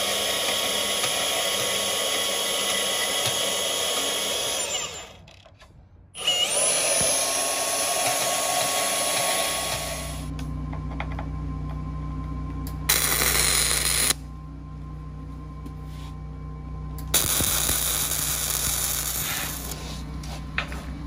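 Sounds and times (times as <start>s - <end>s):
steady low hum: 8.6s - 21.0s
welder arc crackling: 12.9s - 14.2s, 17.1s - 19.8s.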